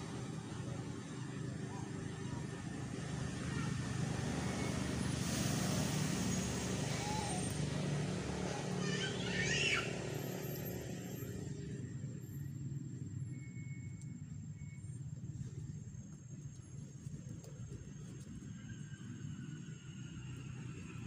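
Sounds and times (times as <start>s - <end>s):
vehicle engine passing: 0.0s - 13.2s.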